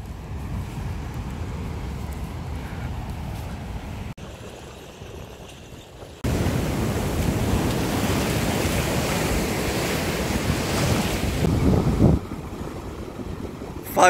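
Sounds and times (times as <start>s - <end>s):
wind buffeting microphone: 0.0s - 14.0s
ocean surf breaking: 6.2s - 14.0s.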